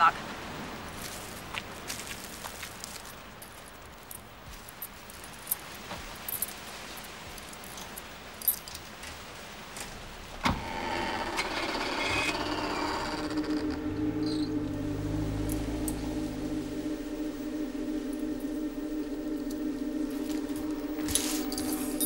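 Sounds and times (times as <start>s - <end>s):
door creaking open: 10.4s - 14.6s.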